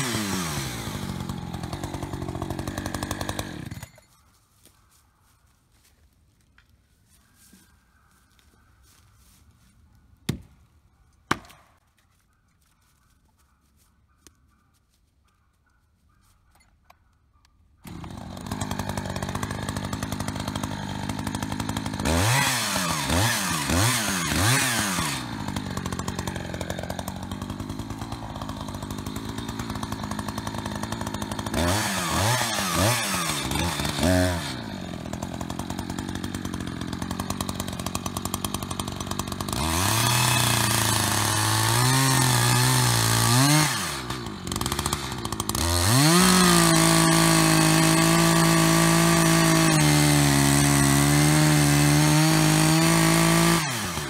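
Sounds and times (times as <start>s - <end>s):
chainsaw idling and revving: 0.0s - 4.2s, 17.8s - 54.0s.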